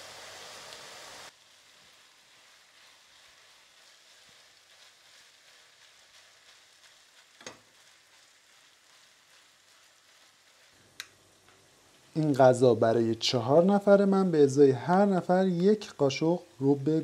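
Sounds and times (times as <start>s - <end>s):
loud even hiss: 0.0s - 1.4s
meat sizzling in a pan: 0.0s - 13.0s.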